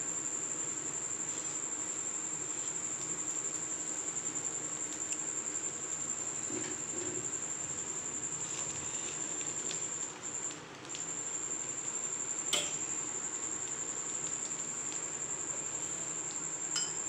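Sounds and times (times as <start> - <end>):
cricket trilling: 0.0 - 17.0.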